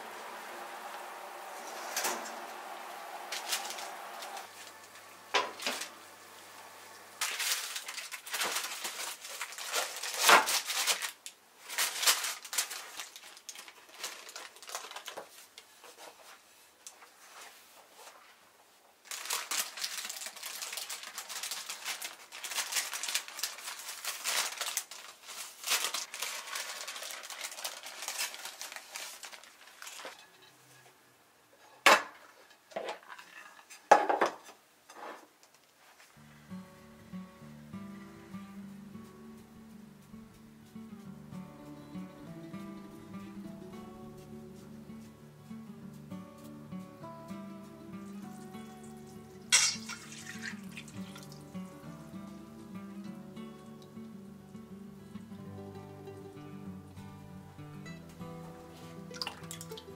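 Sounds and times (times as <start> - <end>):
cling film crinkling: 0.2 - 6.1, 7.2 - 18.2, 19.0 - 30.3, 47.7 - 52.7.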